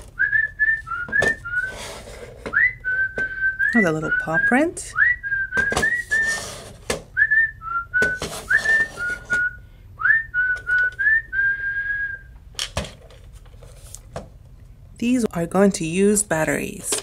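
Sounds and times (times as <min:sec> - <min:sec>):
person whistling a tune: 0:00.2 - 0:01.9, 0:02.5 - 0:12.4.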